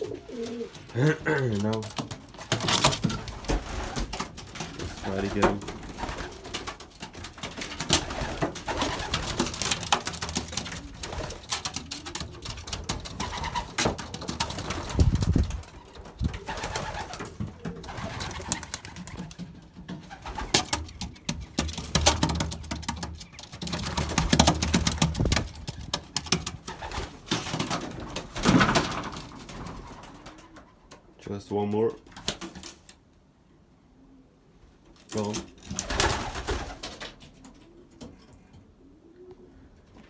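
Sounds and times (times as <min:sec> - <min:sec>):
pigeons cooing: 0:00.0 - 0:06.9, 0:07.7 - 0:22.0, 0:35.7 - 0:40.0.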